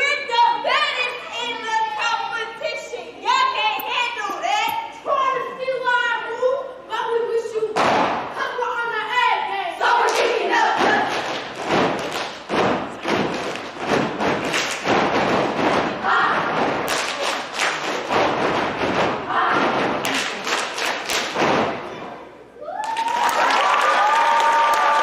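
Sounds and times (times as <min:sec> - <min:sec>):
stomping and clapping in rhythm: 0:07.8 - 0:08.4, 0:09.8 - 0:25.0.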